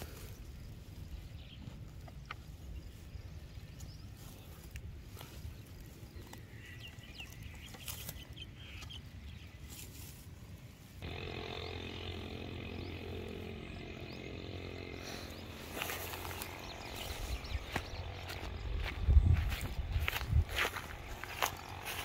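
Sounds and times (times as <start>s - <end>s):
dry straw rustling and crackling: 0.0s - 11.2s, 14.8s - 22.0s
steady buzzing drone: 11.0s - 22.0s.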